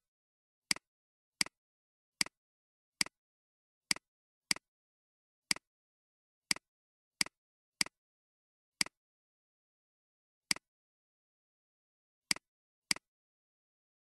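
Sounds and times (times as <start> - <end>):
computer mouse clicks: 12.3 - 13.1.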